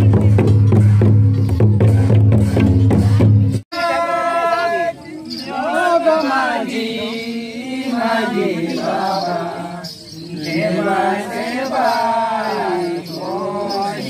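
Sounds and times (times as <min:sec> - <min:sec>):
person chanting: 0:03.8 - 0:14.0.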